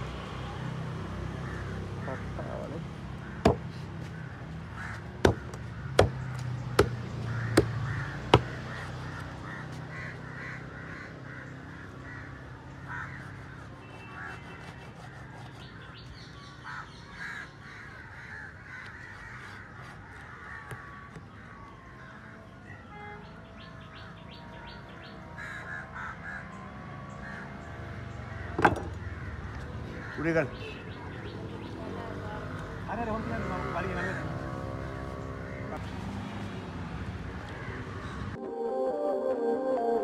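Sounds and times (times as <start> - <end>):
birds calling: 1.2 - 38.4
knife chopping on wooden board: 3.4 - 3.7, 5.2 - 8.6.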